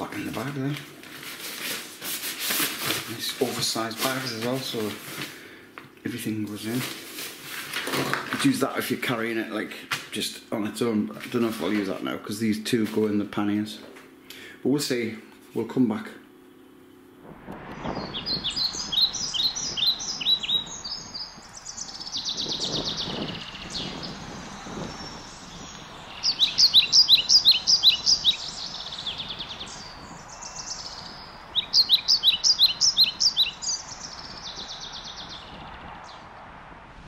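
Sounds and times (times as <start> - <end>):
songbirds singing: 0.0 - 0.9, 13.4 - 36.5.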